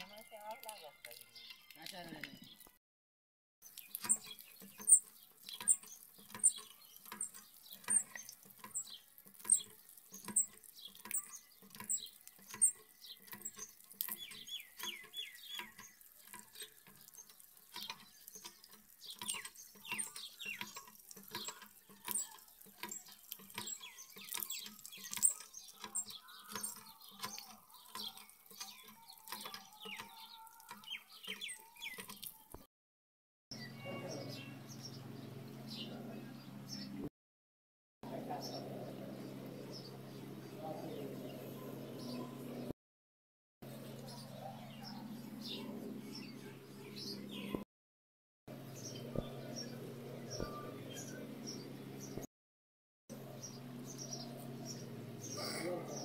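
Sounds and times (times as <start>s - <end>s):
water stream splashing on mud: 3.6s - 32.4s.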